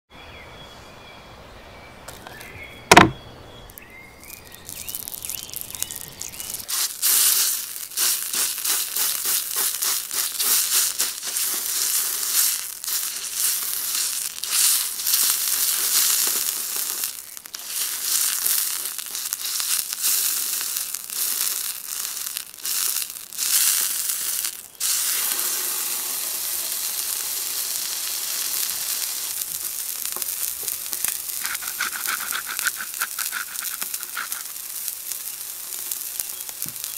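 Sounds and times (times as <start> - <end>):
sharp thump: 2.9 - 3.2
steak sizzling on griddle: 4.2 - 36.9.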